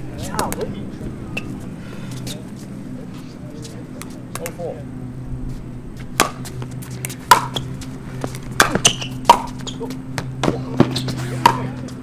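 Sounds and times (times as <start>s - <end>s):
low hum: 0.0s - 12.0s
ball bouncing on hard court: 6.2s - 6.5s, 7.3s - 7.6s, 8.2s - 11.8s.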